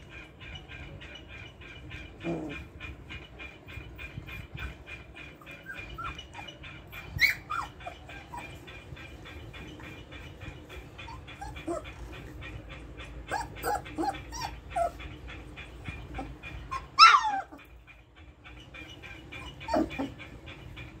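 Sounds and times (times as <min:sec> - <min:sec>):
puppies whimpering and yipping: 0:00.0 - 0:21.0
puppy yelp: 0:04.1 - 0:08.9, 0:10.7 - 0:12.6, 0:13.2 - 0:15.2, 0:15.9 - 0:17.8, 0:19.4 - 0:20.3.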